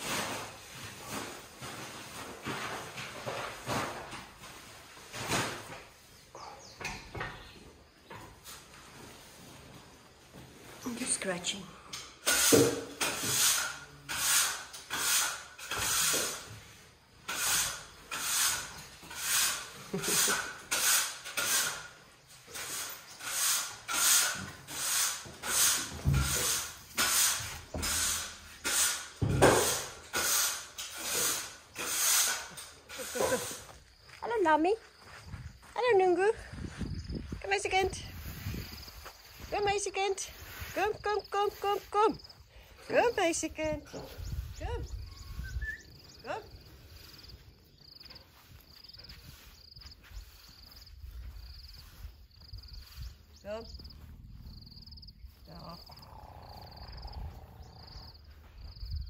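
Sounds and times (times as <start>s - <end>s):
insect chirping in pulsed trills: 44.2s - 59.0s.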